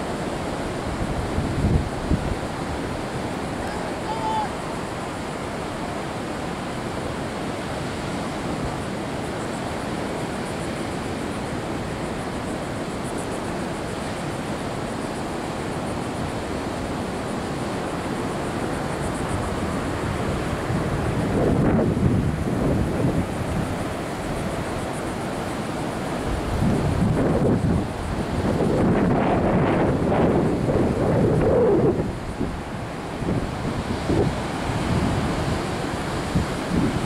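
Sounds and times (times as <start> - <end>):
wind on microphone: 0.0 - 9.2, 18.2 - 37.0
ocean surf breaking: 0.0 - 37.0.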